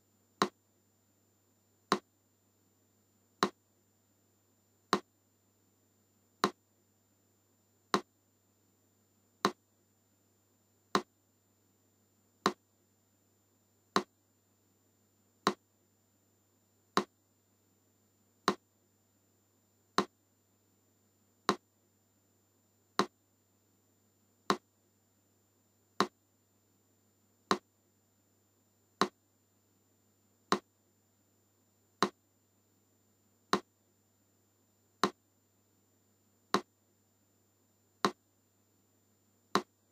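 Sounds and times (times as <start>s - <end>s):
faint low hum: 0.0s - 39.9s.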